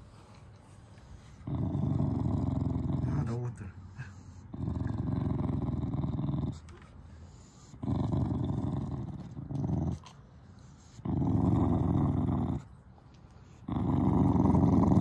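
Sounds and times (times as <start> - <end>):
dog growling low: 1.2 - 6.8, 7.4 - 10.2, 10.8 - 12.8, 13.5 - 15.0.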